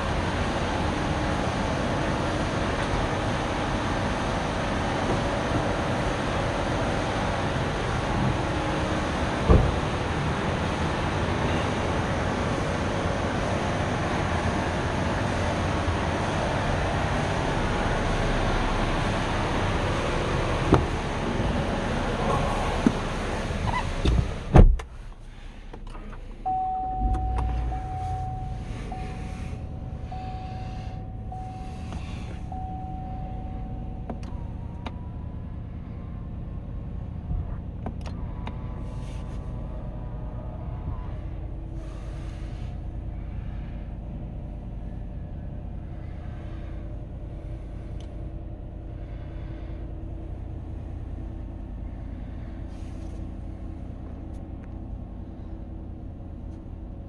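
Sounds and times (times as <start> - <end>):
car door shutting: 9.4 - 9.8, 20.7 - 21.0, 23.6 - 25.0, 25.7 - 29.6
engine starting and idling: 17.0 - 36.0
steady tone: 26.4 - 34.1.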